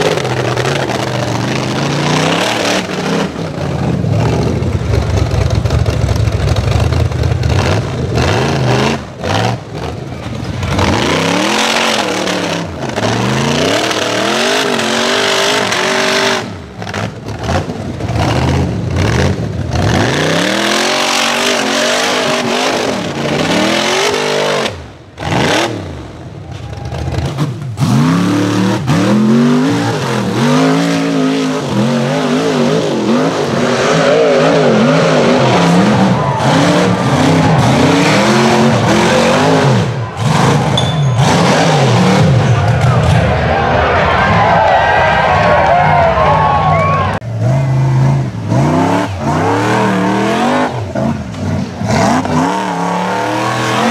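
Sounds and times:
buggy engines revving hard: 0:00.0 - 0:53.9.

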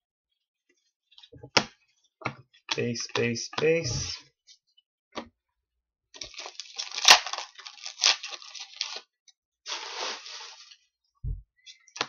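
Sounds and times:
sharp loud cracks of foil: 0:06.2 - 0:09.0
foil wrapper tearing and crinkling: 0:06.2 - 0:09.1.

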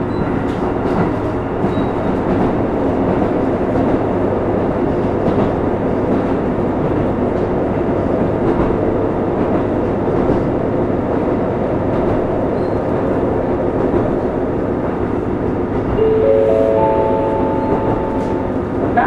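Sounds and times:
railcar wheels rumbling on rails: 0:00.0 - 0:19.0.

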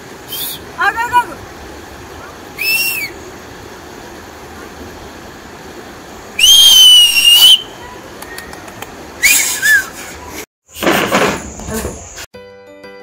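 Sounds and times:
person whistling: 0:02.6 - 0:03.1, 0:09.2 - 0:09.9.

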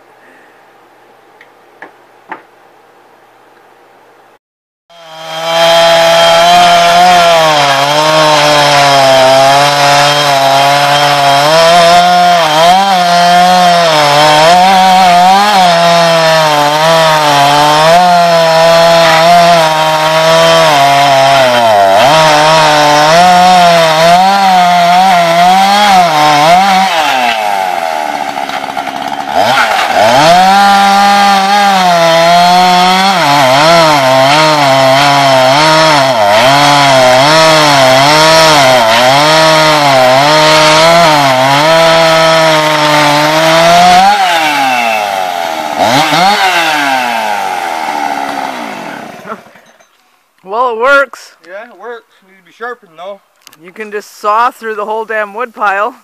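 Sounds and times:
chainsaw idling: 0:04.9 - 0:49.7
chainsaw cutting wood: 0:04.9 - 0:51.1.

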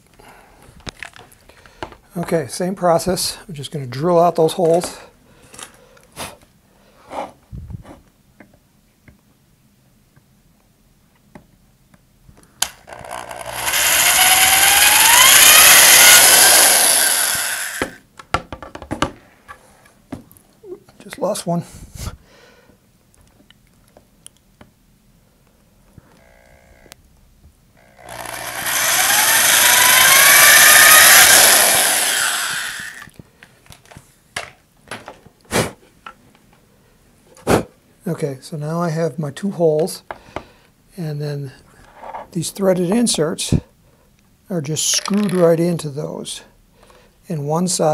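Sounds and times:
electric drill boring wood: 0:12.6 - 0:18.0, 0:27.8 - 0:33.1, 0:45.0 - 0:45.4.

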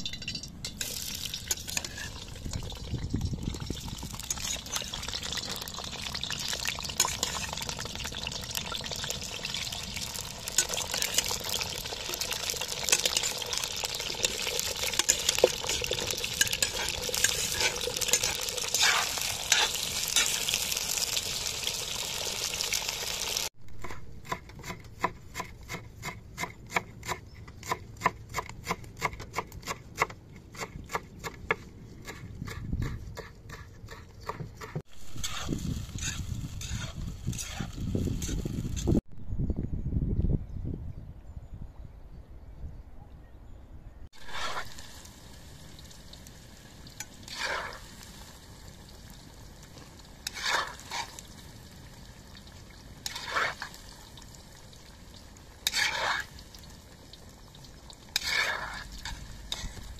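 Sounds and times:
spoon scraping and clattering: 0:00.0 - 0:02.8, 0:10.6 - 0:20.4
potatoes sizzling in oil: 0:00.8 - 0:23.5, 0:34.9 - 0:39.0, 0:44.2 - 0:59.9.

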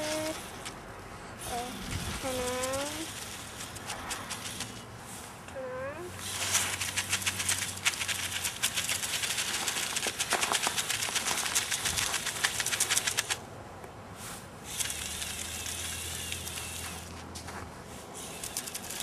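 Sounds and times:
plastic tracks and gears clattering: 0:06.2 - 0:13.4, 0:14.7 - 0:17.1, 0:18.3 - 0:19.0.

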